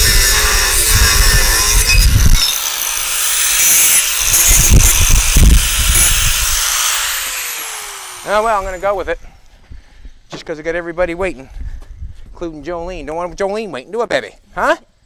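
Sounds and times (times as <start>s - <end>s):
angle grinder grinding metal: 0.0s - 9.2s.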